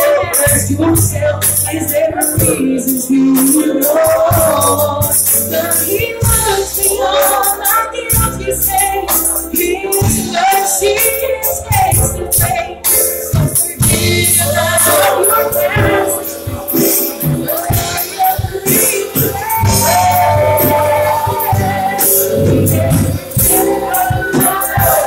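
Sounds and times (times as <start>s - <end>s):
church band playing: 0.0s - 25.0s
gospel singing: 0.0s - 25.0s
bass line: 8.1s - 25.0s.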